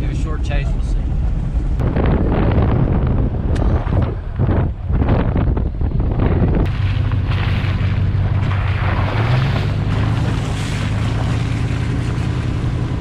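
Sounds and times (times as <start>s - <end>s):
truck engine driving: 0.0s - 13.0s
water spraying off tyre: 6.7s - 13.0s.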